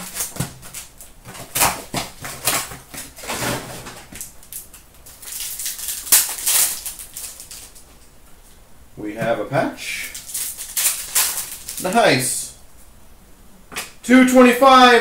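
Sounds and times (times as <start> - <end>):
foil pack tearing open: 0.0 - 7.9, 10.1 - 12.0
rustling and crinkling of wrappers: 0.0 - 8.5, 10.0 - 12.2.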